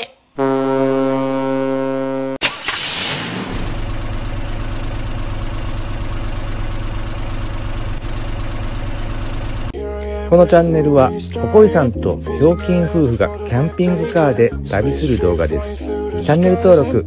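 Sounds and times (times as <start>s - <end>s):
ship's horn blast: 0.4s - 2.4s
vehicle engine starting and running: 2.4s - 11.3s.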